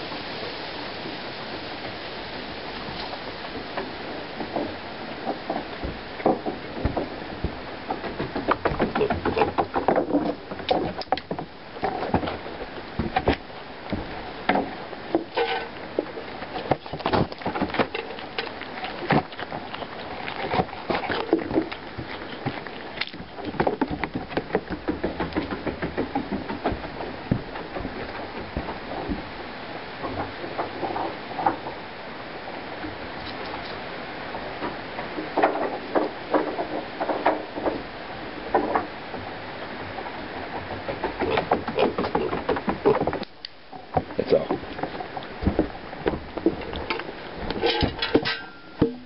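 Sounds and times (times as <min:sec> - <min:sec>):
pig crunching and chewing treats: 0:02.8 - 0:31.8, 0:39.6 - 0:49.0.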